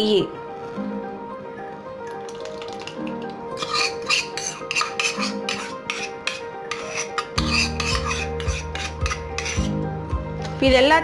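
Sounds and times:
background music: 0.0 - 11.0
steel spoon scraping ceramic cup: 3.6 - 9.7.

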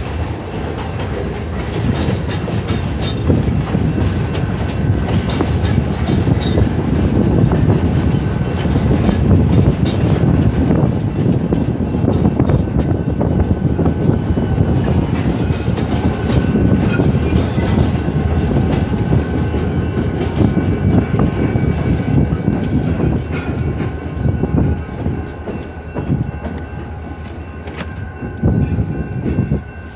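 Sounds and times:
diesel locomotives rumbling: 0.0 - 29.9
train cars clattering over rail joints: 0.0 - 29.9.

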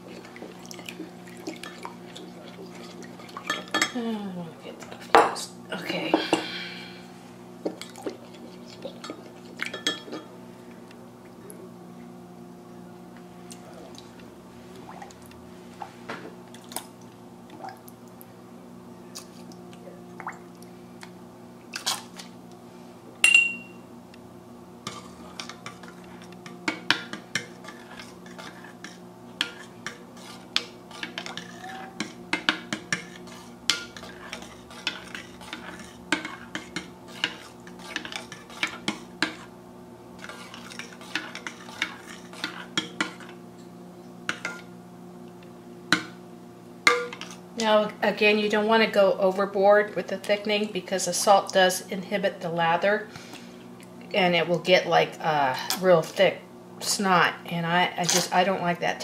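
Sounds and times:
low steady hum: 0.0 - 59.0
spoon clinking against glass: 23.2 - 23.8.

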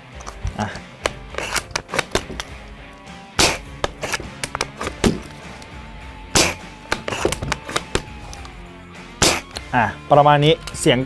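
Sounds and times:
rifle bolt clicks: 0.2 - 3.1, 6.9 - 8.6
airsoft rifle shots: 3.4 - 5.2, 9.2 - 9.5.

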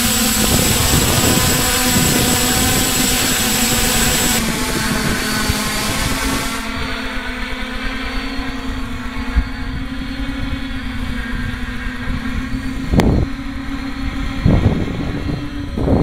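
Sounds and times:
drone motors humming: 0.0 - 16.0
wind rumbling on microphone: 0.0 - 16.0.

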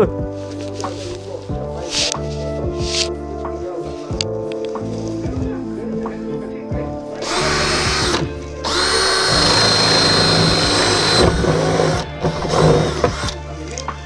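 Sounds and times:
background music: 0.0 - 14.0
power drill whine: 7.2 - 13.4.

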